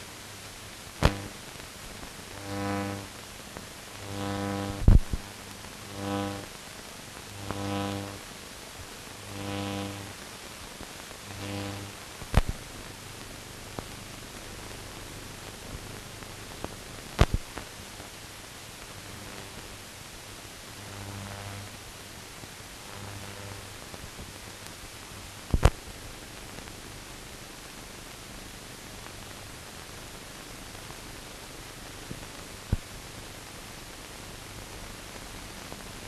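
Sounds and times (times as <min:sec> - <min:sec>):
faint hum: 0:00.0 - 0:36.0
film hiss: 0:00.0 - 0:36.0
sharp pops: 0:01.0 - 0:01.4, 0:12.2 - 0:12.6, 0:17.2 - 0:17.6, 0:25.5 - 0:25.8.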